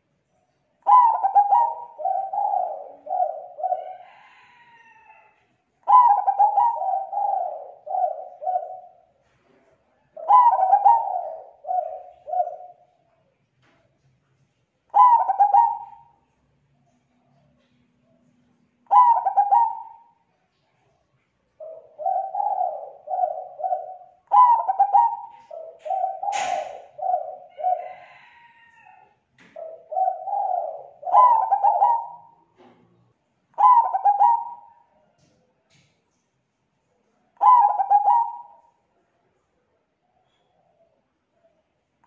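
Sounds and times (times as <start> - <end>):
dove cooing: 0.8 - 13.0, 14.9 - 16.4, 17.1 - 20.5, 21.6 - 35.5, 37.2 - 38.9
sharp click: 26.3 - 26.8.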